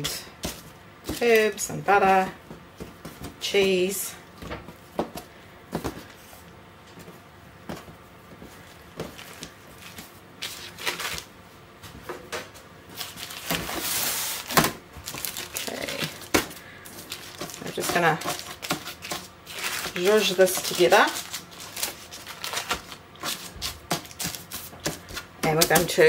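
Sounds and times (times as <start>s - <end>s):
baking paper crinkling: 8.5s - 11.3s, 12.9s - 26.0s.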